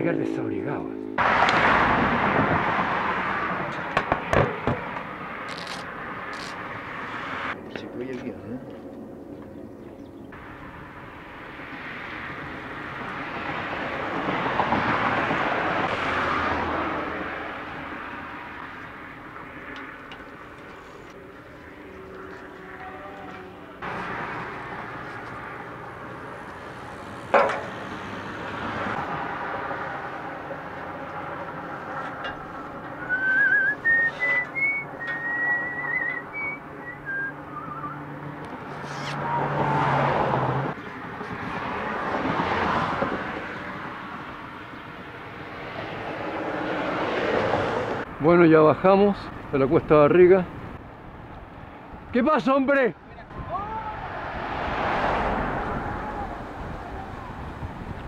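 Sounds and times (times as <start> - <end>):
bicycle tyres on road: 1.2 - 7.6, 8.8 - 48.3, 53.4 - 58.0
rushing wind: 1.2 - 22.8, 23.4 - 58.0
wind on microphone: 55.4 - 58.0.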